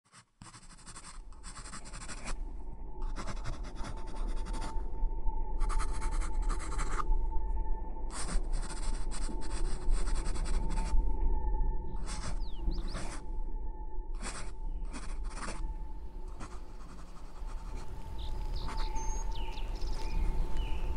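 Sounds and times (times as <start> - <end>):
low rumbling drone: 2.3 - 20.9.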